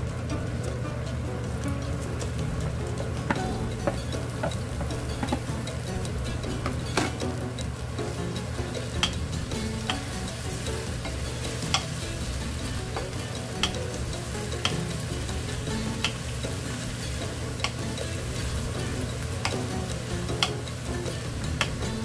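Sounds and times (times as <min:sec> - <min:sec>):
vegetable strips sizzling in pan: 0:00.0 - 0:22.0
spatula clicking against pan: 0:08.4 - 0:18.4, 0:19.1 - 0:22.0.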